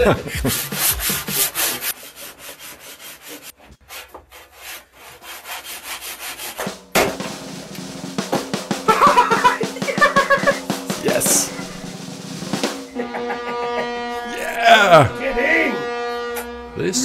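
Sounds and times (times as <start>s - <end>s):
handsaw cutting through log: 0.3s - 6.6s.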